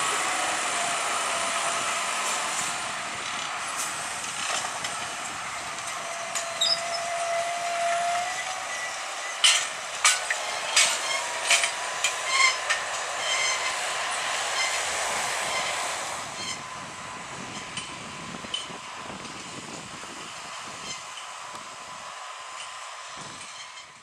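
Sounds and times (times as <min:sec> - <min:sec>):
tractor diesel engine under load: 0:00.0 - 0:24.0
plough clanking and rattling: 0:09.4 - 0:13.8.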